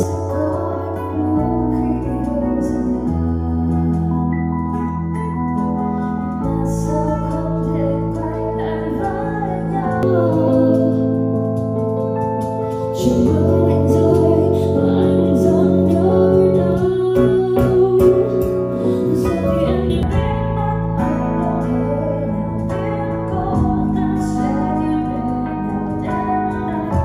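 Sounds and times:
song with vocals through speaker: 0:00.0 - 0:27.0.

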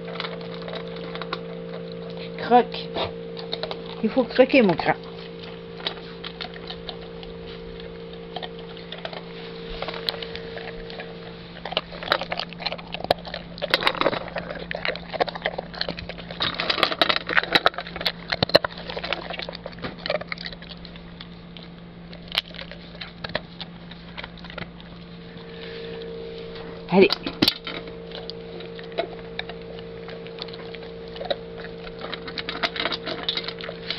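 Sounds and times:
dog crunching dry kibble: 0:00.0 - 0:33.9
kibble clinking against metal bowl: 0:26.0 - 0:33.9.

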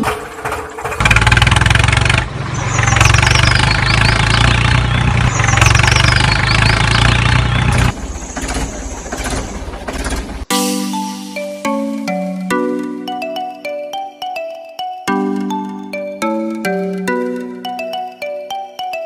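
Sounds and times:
engine running steadily: 0:00.0 - 0:10.5.

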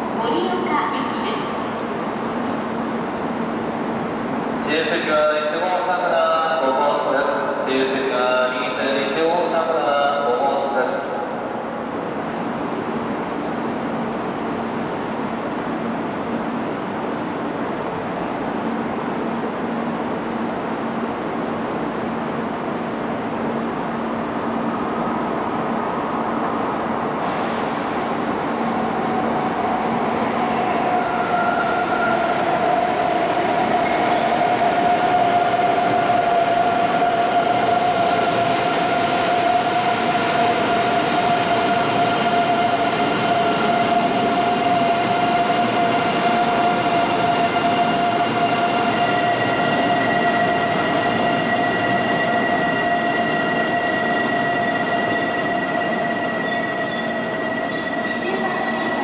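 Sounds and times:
train running noise: 0:00.0 - 0:59.0
high whine and squeal: 0:28.7 - 0:59.0.

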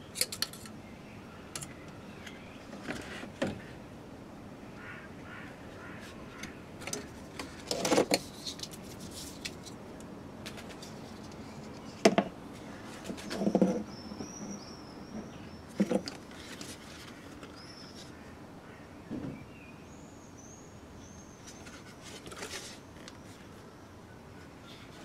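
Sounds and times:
bird chirping: 0:13.9 - 0:15.8.

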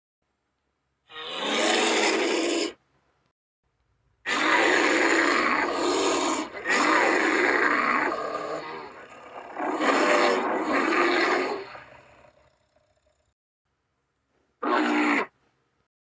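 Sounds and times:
bear calling harshly: 0:01.1 - 0:02.8, 0:04.3 - 0:12.2, 0:14.6 - 0:15.4.

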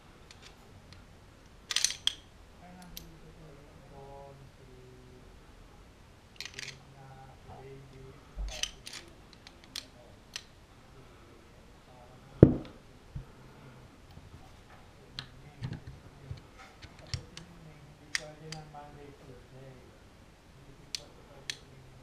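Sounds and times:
loud knock: 0:12.4 - 0:12.8.

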